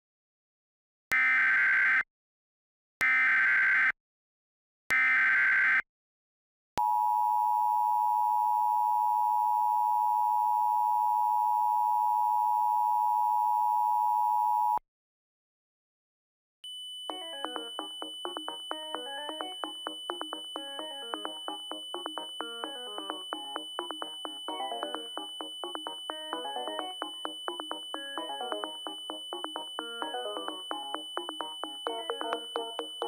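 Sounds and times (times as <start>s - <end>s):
two-tone alert signal: 17.1s - 33.0s.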